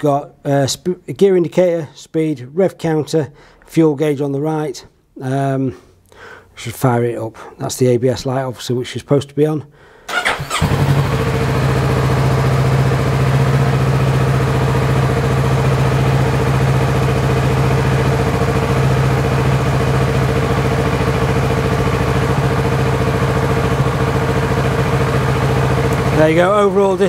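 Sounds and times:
motorcycle engine starting and idling: 0:10.1 - 0:27.0.

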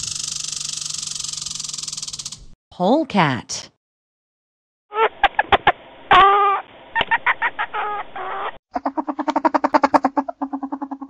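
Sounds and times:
polecat calls and squeaks: 0:07.5 - 0:11.0
polecat fast chattering: 0:08.7 - 0:11.0.

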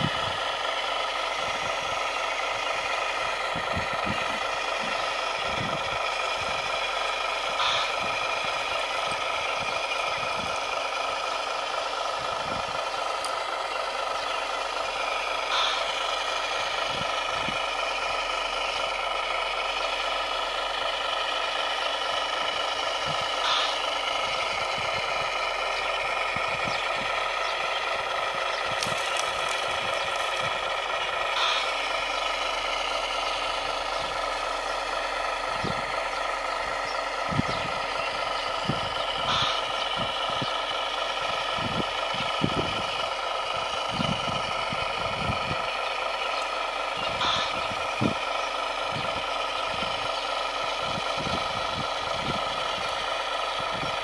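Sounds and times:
steady mechanical whine: 0:00.0 - 0:54.0.

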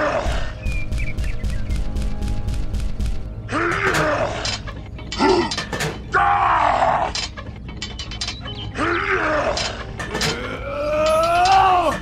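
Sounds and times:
person groaning and grunting: 0:10.2 - 0:12.0.

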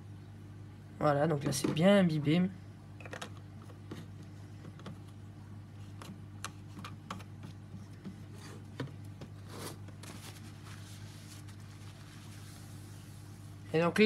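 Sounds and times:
soft rustle: 0:09.4 - 0:13.7.

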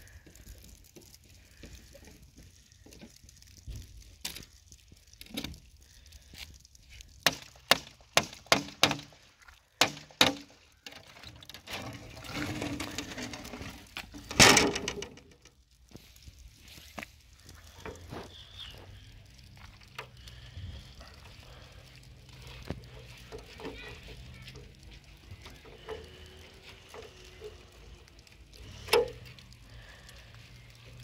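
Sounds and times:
rough scraping: 0:07.2 - 0:30.2.

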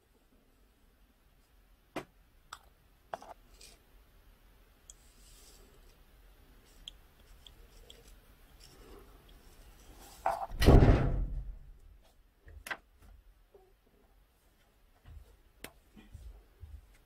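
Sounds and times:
heavy thump: 0:10.5 - 0:11.7.

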